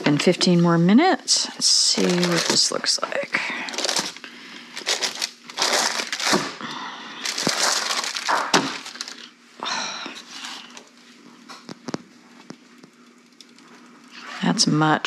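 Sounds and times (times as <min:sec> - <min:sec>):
parchment paper crinkling: 0:01.2 - 0:06.6, 0:07.2 - 0:09.3.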